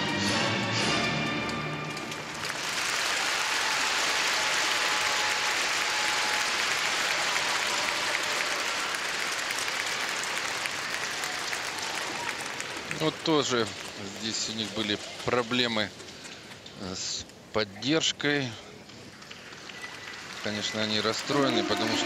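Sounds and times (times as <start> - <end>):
music: 0.0 - 2.6
arena crowd applauding: 2.2 - 16.2, 18.8 - 22.0.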